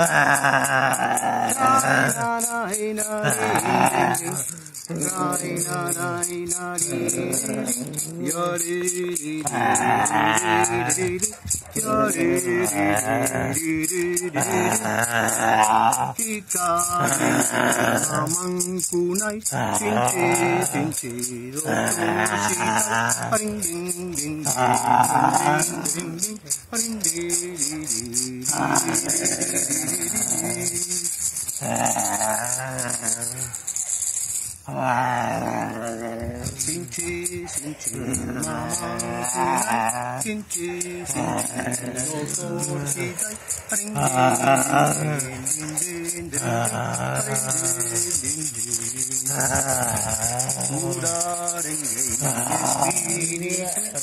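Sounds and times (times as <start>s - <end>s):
man moaning: 0.0s - 6.0s, 6.8s - 8.3s, 9.4s - 11.2s, 11.9s - 13.6s, 14.3s - 16.2s, 17.0s - 18.4s, 19.5s - 21.0s, 21.6s - 23.5s, 24.4s - 26.2s, 28.5s - 33.6s, 34.6s - 36.7s, 37.7s - 40.3s, 41.0s - 48.2s, 49.3s - 51.2s, 52.0s - 54.0s
hand rattle shaking: 0.0s - 54.0s
man's low vocal sounds: 0.0s - 54.0s.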